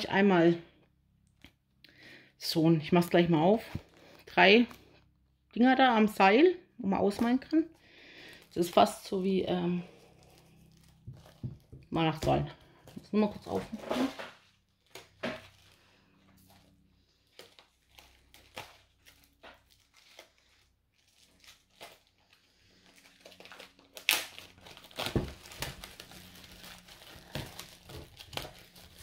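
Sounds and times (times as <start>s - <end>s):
packaging crinkling and tearing: 8.2s - 11.9s, 12.6s - 29.0s.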